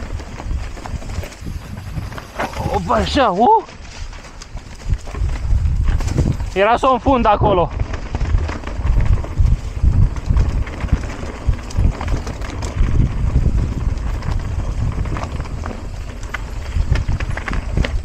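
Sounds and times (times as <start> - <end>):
bike knocking on rocks: 0.0 - 6.9
bike rattling: 0.0 - 18.0
tyres rumbling over stones: 0.0 - 18.0
wind rumble on microphone: 0.0 - 18.0.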